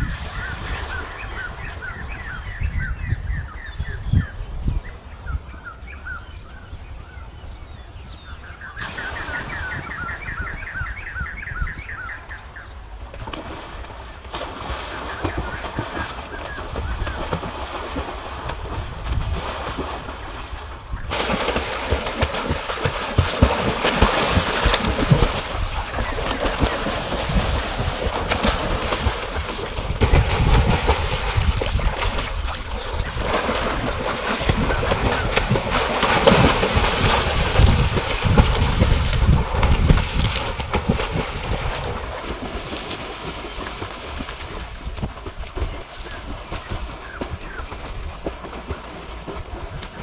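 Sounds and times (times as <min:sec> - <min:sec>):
wind buffeting microphone: 0:00.0 - 0:50.0
pool water splashing: 0:08.7 - 0:11.2, 0:12.9 - 0:50.0.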